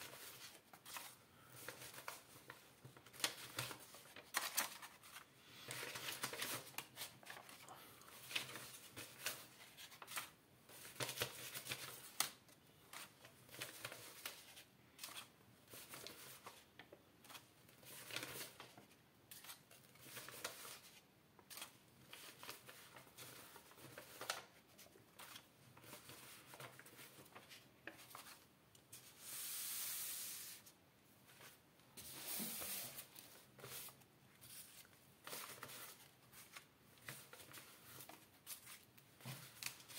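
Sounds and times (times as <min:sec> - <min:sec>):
stack of notes rustling: 0:00.0 - 0:39.9.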